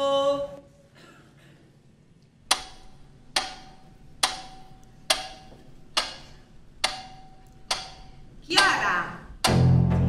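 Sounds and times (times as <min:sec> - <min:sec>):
sharp ringing ticks: 0:02.5 - 0:08.8.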